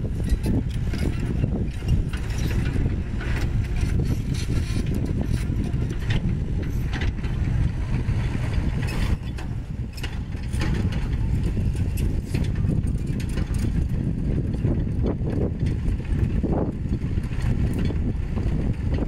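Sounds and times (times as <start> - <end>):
excavator diesel engine: 0.0 - 19.0
metallic clanks and scrapes: 0.1 - 14.0.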